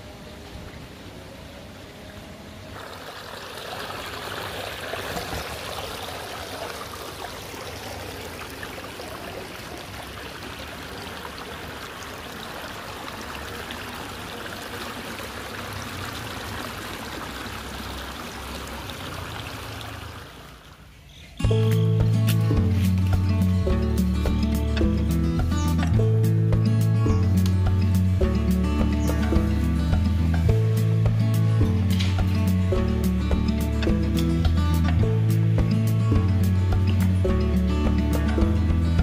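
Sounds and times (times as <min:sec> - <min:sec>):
stream splashing over stones: 0:02.7 - 0:20.9.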